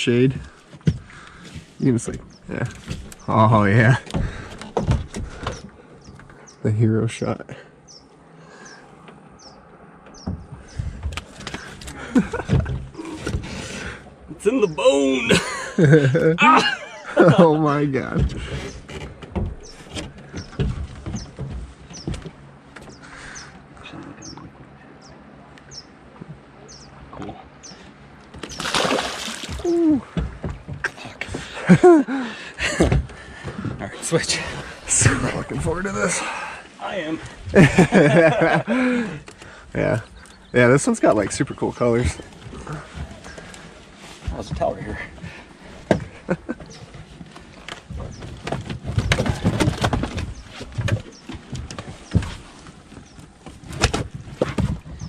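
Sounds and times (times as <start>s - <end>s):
knocks and thumps on boat deck: 0.2s - 6.4s, 10.0s - 14.1s, 15.3s - 23.4s, 28.3s - 36.6s, 37.2s - 40.0s, 41.0s - 55.0s
man exclaiming: 14.4s - 15.4s, 29.6s - 30.1s
fish splashing into water: 28.4s - 29.8s.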